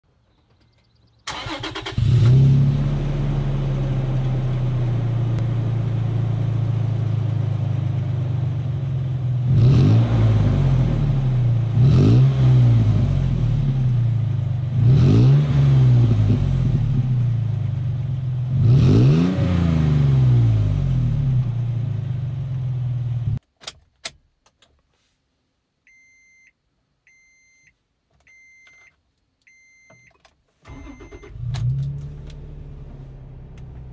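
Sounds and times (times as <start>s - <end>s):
truck engine starting and revving: 1.3s - 17.8s, 18.4s - 23.4s, 30.7s - 33.9s.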